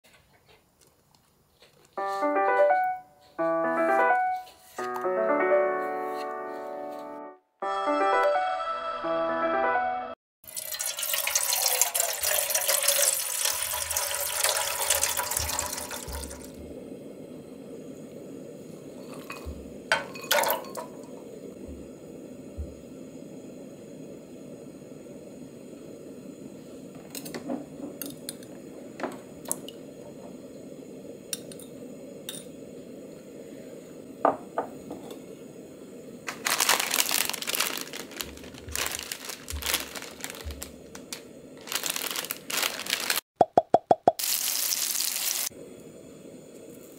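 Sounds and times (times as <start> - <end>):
water poured into pot: 10.4 - 16.6, 44.1 - 45.5
gas burner hissing: 10.8 - 43.2, 44.2 - 46.9
plastic packet crinkling: 36.3 - 43.2, 44.2 - 45.5.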